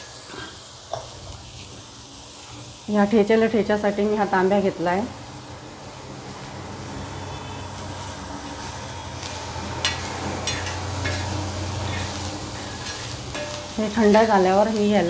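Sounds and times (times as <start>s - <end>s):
light sizzle: 0.0s - 15.0s
metal spatula scraping pan: 9.7s - 14.6s.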